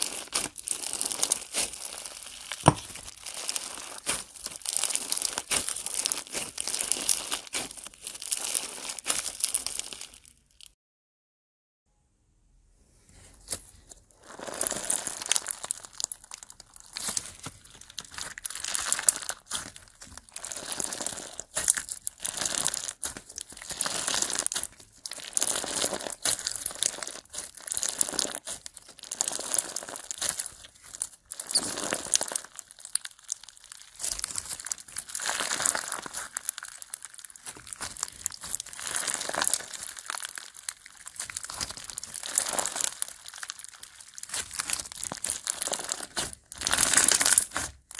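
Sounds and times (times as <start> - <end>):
slime crackling and clicking: 0.0 - 10.2, 14.7 - 47.9.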